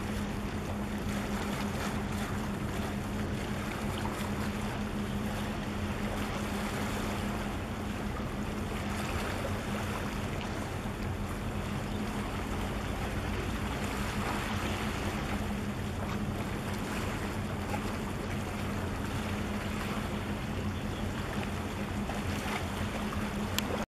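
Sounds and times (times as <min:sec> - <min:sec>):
ship engines droning: 0:00.0 - 0:23.8
wind: 0:00.0 - 0:23.9.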